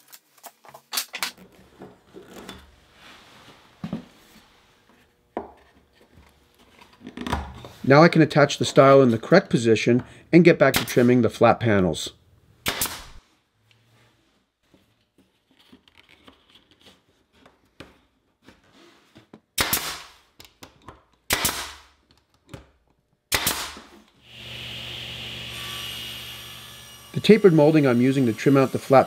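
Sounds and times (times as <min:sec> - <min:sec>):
nail gun firing into wood: 0:12.6 - 0:13.2, 0:19.6 - 0:20.2, 0:21.3 - 0:21.9, 0:23.3 - 0:23.9
machine hum: 0:24.2 - 0:27.2.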